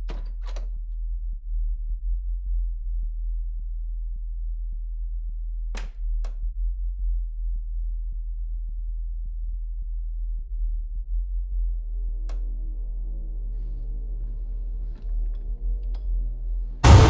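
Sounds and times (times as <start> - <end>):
steady low drone: 6.4 - 17.0.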